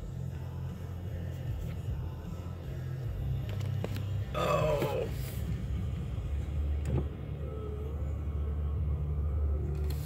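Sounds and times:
vehicle engine rumble: 0.0 - 10.0.

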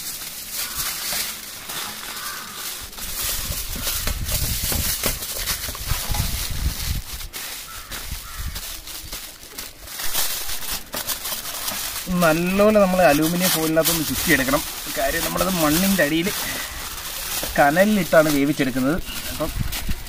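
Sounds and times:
aluminium foil crinkling: 0.0 - 20.0
bird calling: 1.8 - 2.8, 7.6 - 8.6.

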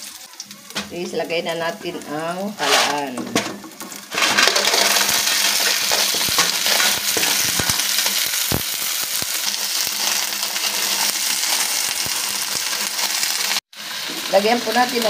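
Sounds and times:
clams sizzling in hot oil: 0.0 - 15.0
stirring clicks: 2.6 - 8.6.

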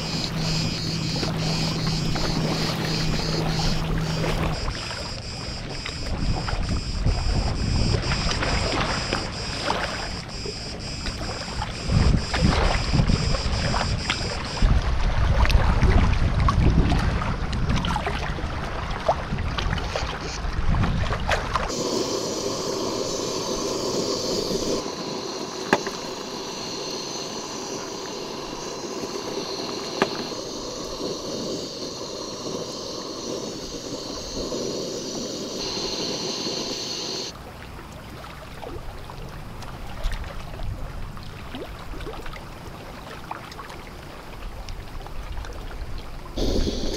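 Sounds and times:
gas stove hissing: 0.0 - 5.8, 21.7 - 37.3, 46.4 - 46.9
wind on microphone: 0.0 - 37.3, 46.4 - 46.9.

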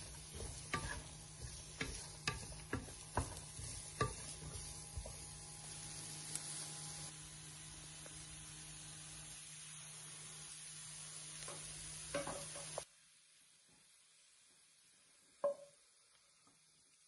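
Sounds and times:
utensil knocking pan: 0.0 - 5.3
courgettes sizzling in pan: 0.0 - 17.0.

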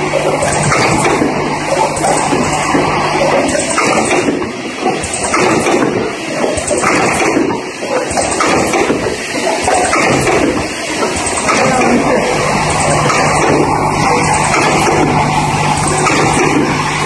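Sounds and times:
capping machine running: 0.0 - 17.0.

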